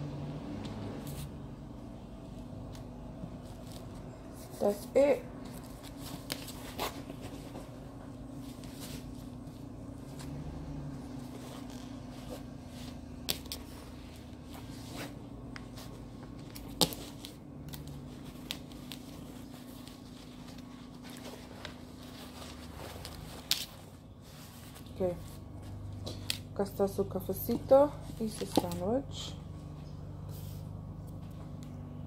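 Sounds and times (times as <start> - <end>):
steady low hum: 0.0 - 32.0
paper towel rustling: 2.3 - 26.3.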